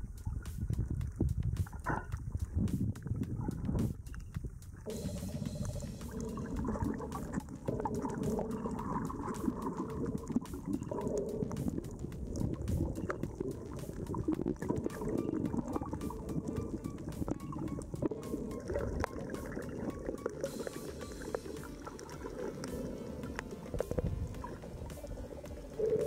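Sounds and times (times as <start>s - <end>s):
small clicks underwater: 0.0s - 4.9s, 5.6s - 26.0s
underwater rushing water: 0.0s - 26.0s.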